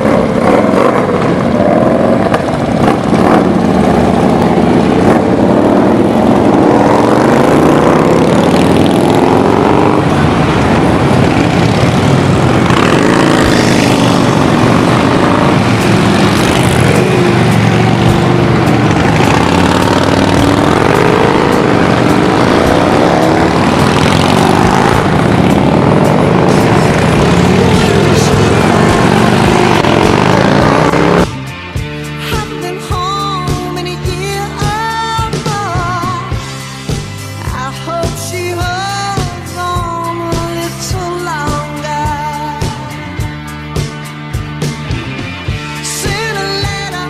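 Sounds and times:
motorcycles riding past: 0.0 - 31.6.

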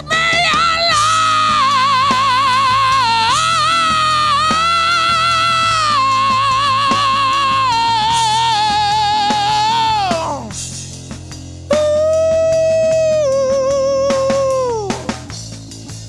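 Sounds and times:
man singing high note: 11.7 - 15.1.

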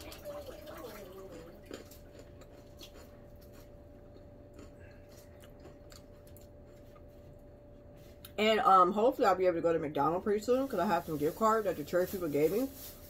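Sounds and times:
faint steady hum: 0.0 - 13.0
quiet chewing: 0.8 - 8.4.

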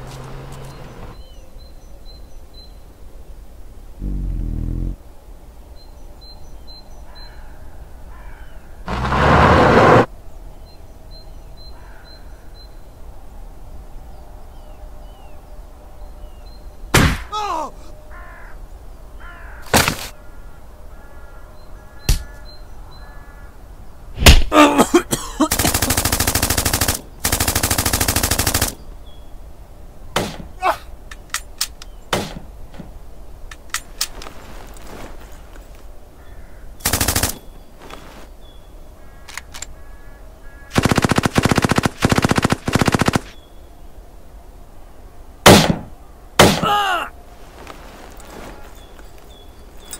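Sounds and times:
single gunshots: 16.9 - 17.3, 24.2 - 24.5, 30.2 - 30.6, 45.4 - 46.8
machine-gun bursts: 25.5 - 28.8, 36.8 - 37.4, 40.8 - 43.3.

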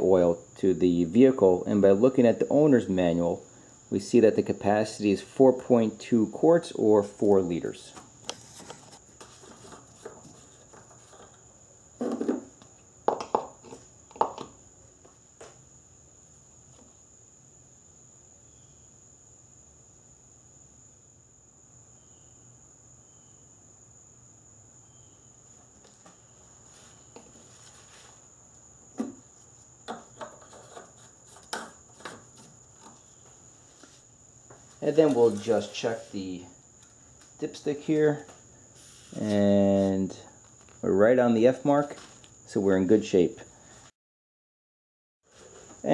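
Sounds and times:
plastic rubbing: 29.9 - 33.2.

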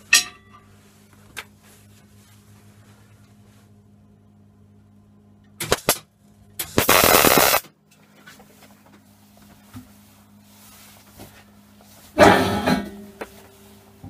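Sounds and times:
welding arc buzzing: 5.6 - 6.0, 6.6 - 7.7
faint handling sounds: 7.9 - 12.2.

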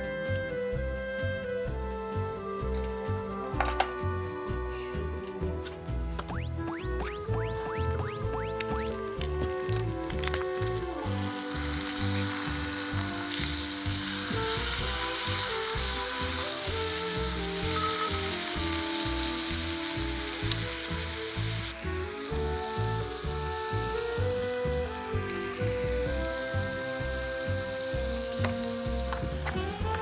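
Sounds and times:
background music: 0.0 - 30.0
meat sizzling on grill pan: 8.7 - 30.0.

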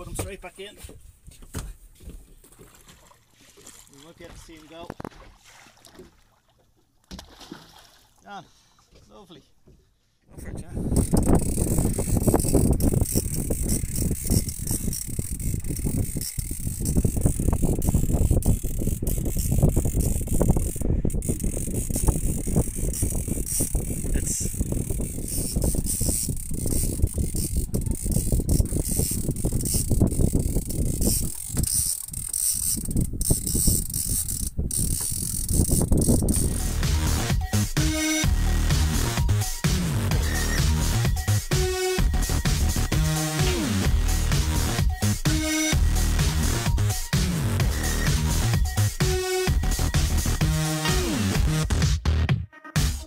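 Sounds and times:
wind noise on microphone: 10.3 - 51.8
fishing reel clicking: 10.8 - 51.6.

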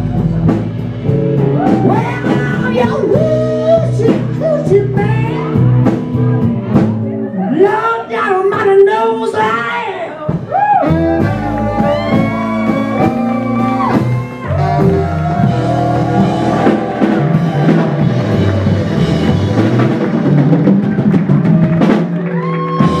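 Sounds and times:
drum kit: 0.0 - 8.8, 10.2 - 23.0
bass line: 0.0 - 23.0
electric guitar: 10.4 - 23.0
saxophone lead line: 10.4 - 23.0.

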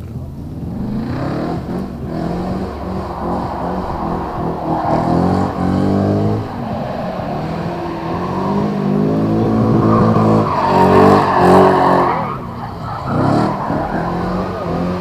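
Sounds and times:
car engine revving hard: 0.4 - 15.0.

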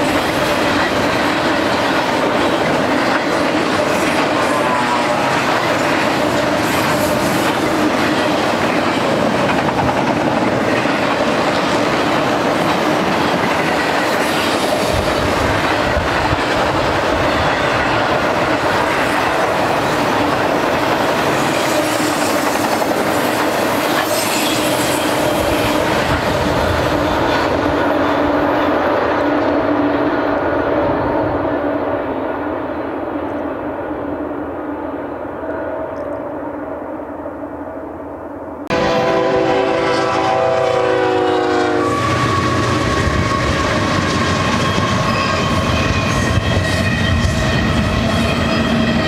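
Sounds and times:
steel wheels on rails: 0.0 - 31.7, 38.9 - 49.0.

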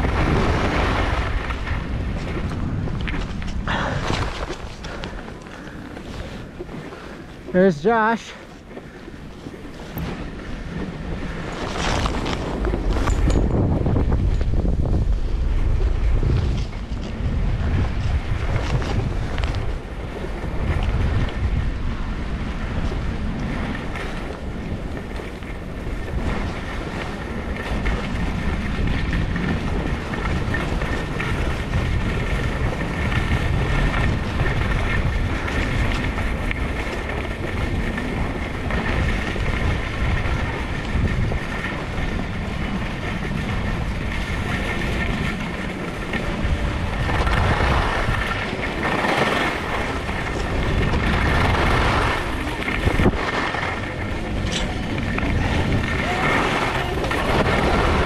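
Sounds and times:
wind buffeting microphone: 0.0 - 58.0
skis hissing over snow: 3.8 - 10.2.

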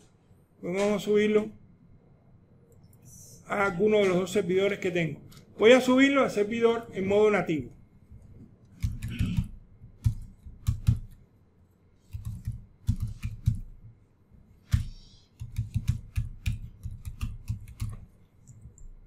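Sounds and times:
keyboard typing: 8.2 - 11.2, 12.0 - 13.9, 14.5 - 19.0.

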